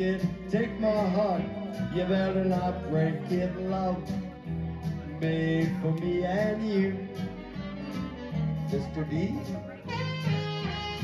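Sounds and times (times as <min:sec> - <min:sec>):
pop backing track with beat: 0:00.0 - 0:11.0
saxophone melody: 0:09.7 - 0:11.0.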